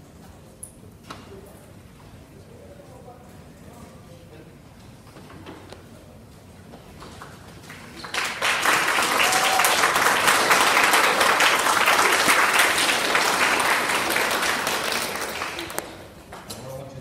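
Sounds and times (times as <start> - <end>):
children applauding: 7.2 - 16.1.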